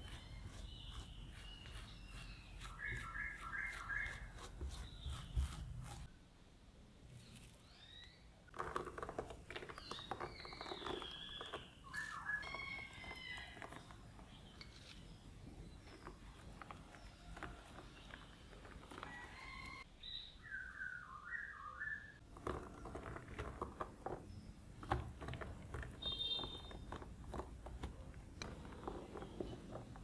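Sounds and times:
small birds chirping: 0.0 - 6.1, 7.2 - 8.3, 9.1 - 22.2.

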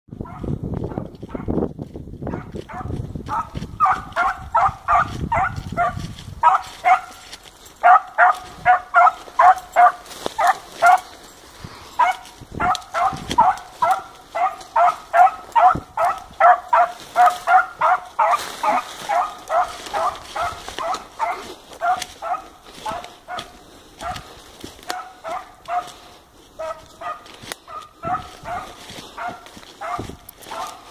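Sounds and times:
dog barking: 0.2 - 1.5, 2.3 - 11.2, 11.9 - 30.9.

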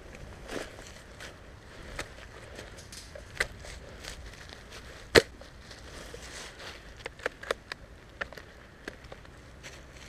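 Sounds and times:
dry leaves crackling: 0.0 - 10.0
twig snapping: 7.0 - 9.4.

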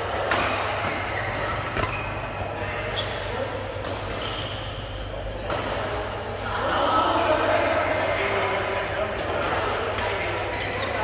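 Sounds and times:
racket hitting shuttlecock: 0.1 - 2.2, 3.8 - 4.4, 5.4 - 6.0.

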